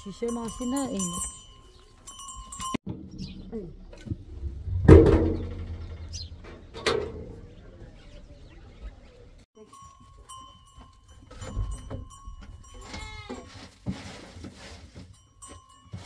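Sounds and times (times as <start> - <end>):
low rumble: 2.9 - 9.4.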